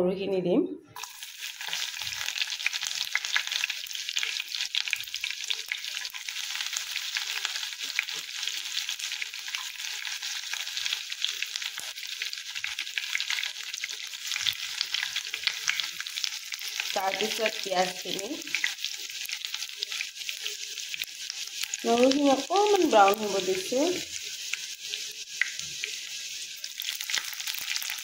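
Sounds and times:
garlic sizzling in oil: 0:01.0 - 0:28.0
small crackling pops: 0:25.3 - 0:25.9.

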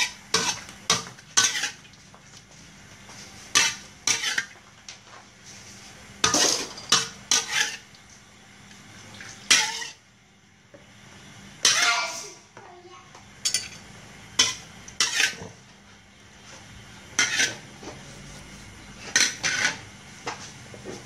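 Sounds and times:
metal spatula scraping a wok: 0:00.0 - 0:01.8, 0:03.2 - 0:04.6, 0:05.4 - 0:07.9, 0:09.5 - 0:10.0, 0:14.4 - 0:15.6, 0:17.0 - 0:20.6.

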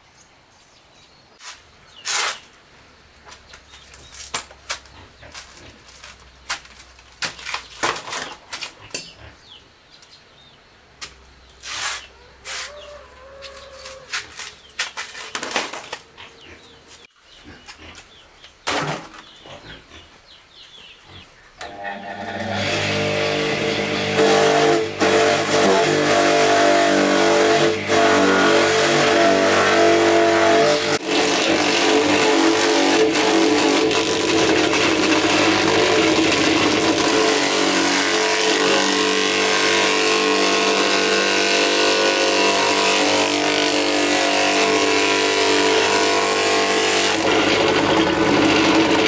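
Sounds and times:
engine running loudly: 0:22.6 - 0:31.0, 0:47.0 - 0:49.0.

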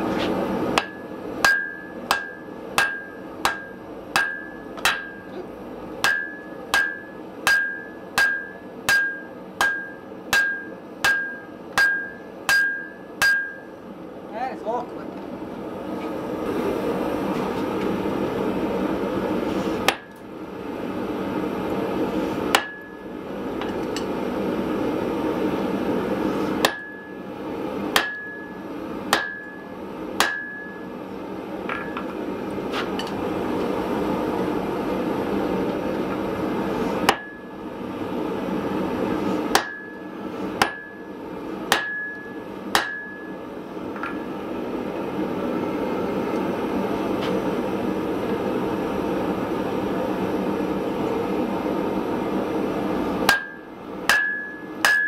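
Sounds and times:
hammer blows on anvil: 0:00.8 - 0:05.3, 0:06.0 - 0:13.7, 0:27.9 - 0:30.9, 0:39.5 - 0:43.4, 0:53.3 - 0:55.0.

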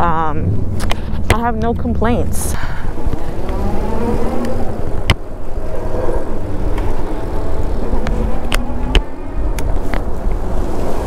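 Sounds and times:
road and traffic noise: 0:00.0 - 0:11.0
wind buffeting camera: 0:00.0 - 0:11.0.

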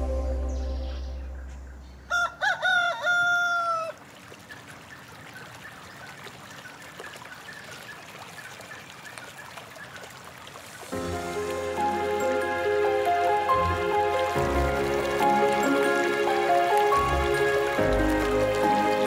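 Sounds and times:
outdoor ambience: 0:00.0 - 0:19.0
rooster crowing: 0:02.1 - 0:04.0.

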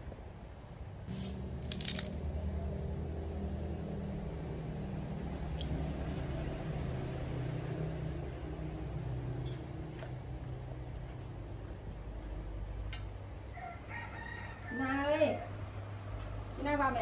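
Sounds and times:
low engine hum: 0:00.8 - 0:12.9.

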